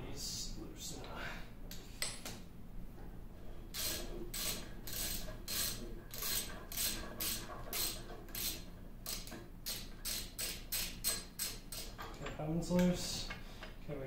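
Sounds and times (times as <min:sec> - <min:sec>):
ratchet wrench ratcheting: 0:03.7 - 0:12.1.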